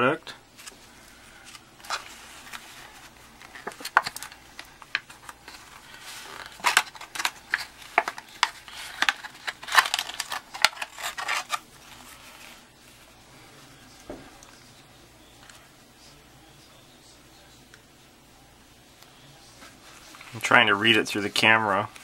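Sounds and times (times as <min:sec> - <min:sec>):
plastic packaging crackling: 0:00.6 - 0:12.4.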